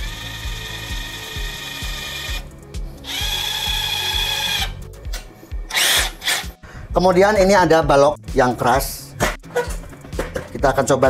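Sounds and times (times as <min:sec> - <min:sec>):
impact driver whining: 0:00.0 - 0:04.8, 0:05.7 - 0:06.6.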